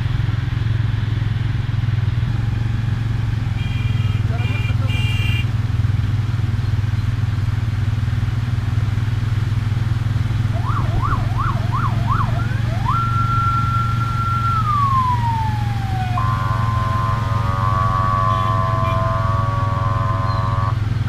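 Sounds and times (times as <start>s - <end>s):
traffic driving through water: 10.4s - 21.0s
electronic siren wailing: 10.5s - 20.8s.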